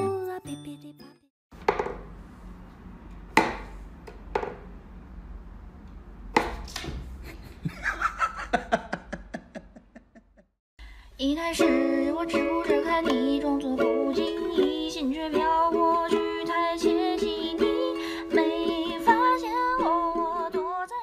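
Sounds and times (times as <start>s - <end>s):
wooden toy knocks: 1.6s - 2.0s.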